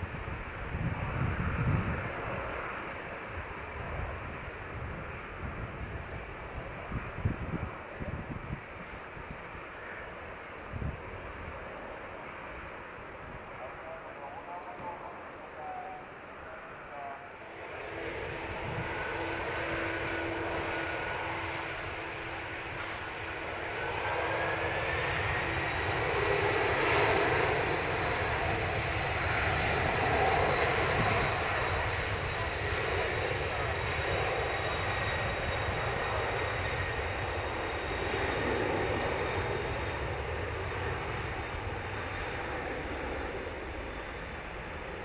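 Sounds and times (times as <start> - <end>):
jet engine whine: 0.0 - 45.0
jet engines roaring: 0.0 - 45.0.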